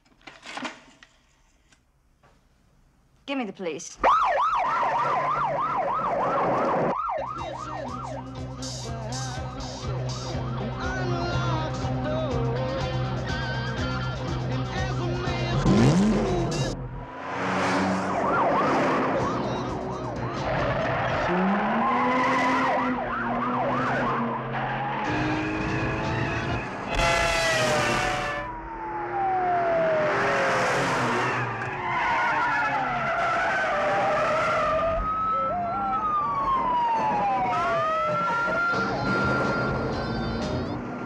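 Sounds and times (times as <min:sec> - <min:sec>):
police sirens wailing: 0:04.0 - 0:12.3, 0:14.9 - 0:41.0
engines revving: 0:14.9 - 0:41.0.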